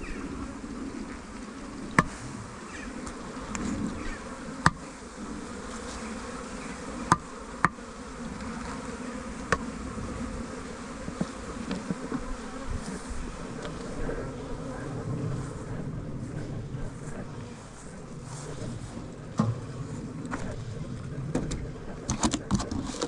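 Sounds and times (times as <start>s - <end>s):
honeybees buzzing: 0.0s - 23.0s.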